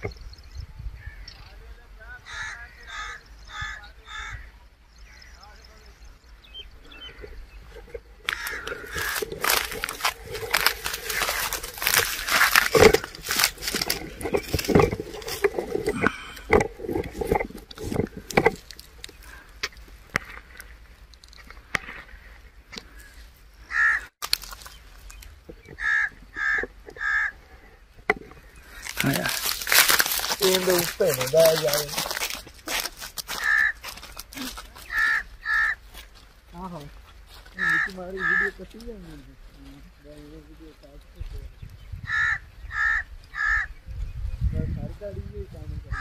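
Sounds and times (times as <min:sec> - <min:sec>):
crow cawing: 0:02.2 - 0:04.6, 0:08.2 - 0:14.0, 0:22.9 - 0:24.1, 0:25.8 - 0:27.5, 0:32.7 - 0:36.1, 0:37.5 - 0:38.7, 0:42.1 - 0:43.7
straw crunching underfoot: 0:06.8 - 0:43.7.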